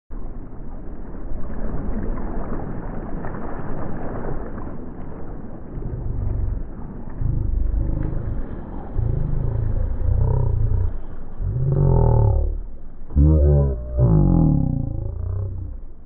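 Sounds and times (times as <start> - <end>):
wind buffeting microphone: 5.5 - 12.8.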